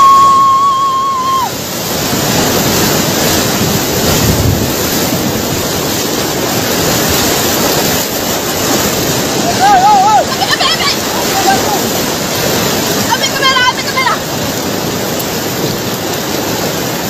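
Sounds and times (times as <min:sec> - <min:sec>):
woman screaming: 0:00.0 - 0:01.6
tidal wave rushing and churning: 0:00.0 - 0:17.0.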